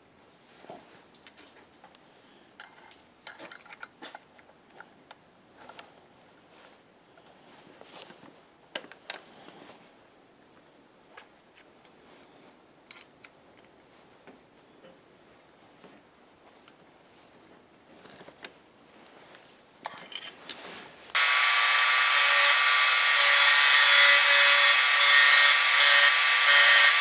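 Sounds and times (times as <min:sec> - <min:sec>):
metal parts clicking: 0:02.6 - 0:04.2, 0:19.8 - 0:20.4.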